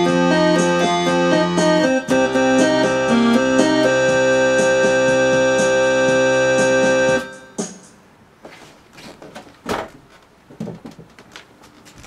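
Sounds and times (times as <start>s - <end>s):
electronic keyboard chord: 0.0s - 7.7s.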